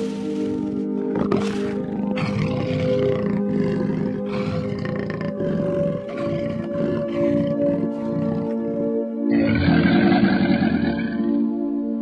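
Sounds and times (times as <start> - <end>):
calm background music: 0.0 - 12.0
big cat roaring: 1.1 - 11.4.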